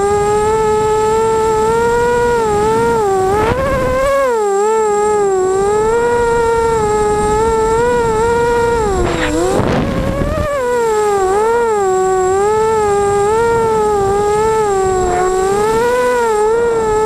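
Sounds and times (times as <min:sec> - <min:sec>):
quadcopter motors whining: 0:00.0 - 0:17.0
rush of air noise: 0:04.8 - 0:17.0.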